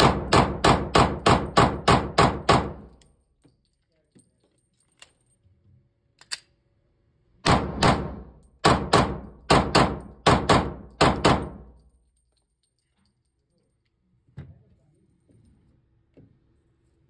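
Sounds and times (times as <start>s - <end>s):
pistol gunshots ringing indoors: 0.0s - 3.1s, 7.4s - 12.0s.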